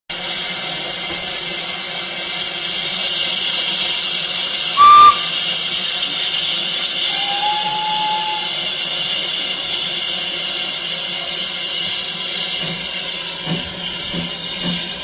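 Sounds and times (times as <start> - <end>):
steam locomotive hissing: 0.1 - 15.0
steam whistle toot: 4.7 - 5.6, 6.9 - 9.2.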